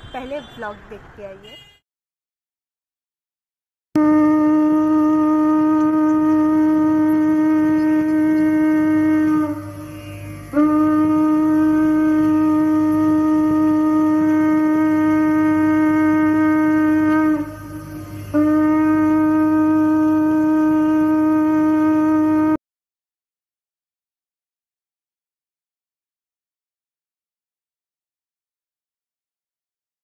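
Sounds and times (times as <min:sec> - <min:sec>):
conch shell blasts: 0:04.0 - 0:22.6.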